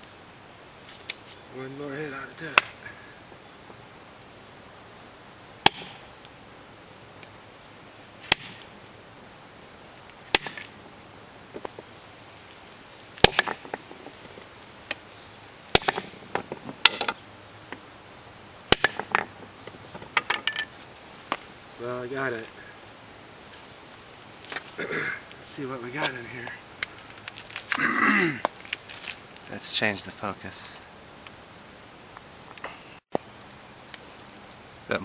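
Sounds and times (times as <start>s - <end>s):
hammer striking metal: 5.6s - 6.0s, 15.7s - 16.1s, 18.7s - 19.2s
light metallic clinks: 18.8s - 20.8s.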